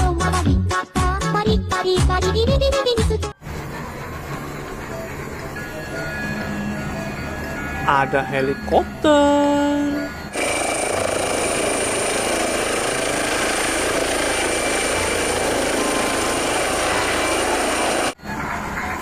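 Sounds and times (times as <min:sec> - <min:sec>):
helicopter rotor noise: 0:10.2 - 0:18.2.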